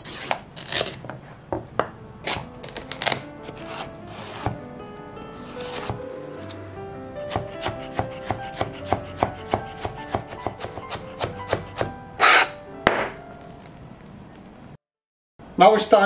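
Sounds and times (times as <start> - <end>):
knife scraping board: 0.0 - 1.2, 3.4 - 4.6, 5.4 - 6.6, 7.3 - 12.6
background music: 1.7 - 14.0
knife chopping on cutting board: 2.3 - 4.6, 5.4 - 6.5, 7.3 - 13.2
sharp knock: 12.8 - 13.2.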